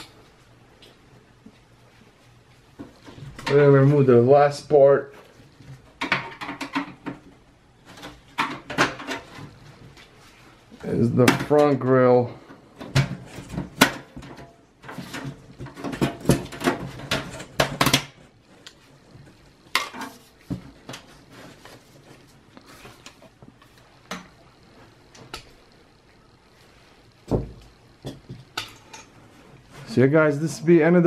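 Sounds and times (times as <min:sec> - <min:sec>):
heavy thump: 0:27.3 - 0:27.6.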